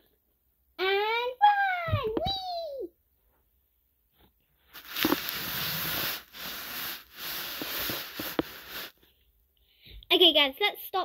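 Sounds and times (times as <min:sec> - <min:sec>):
rustling and scraping handling noise: 0:04.2 - 0:09.1.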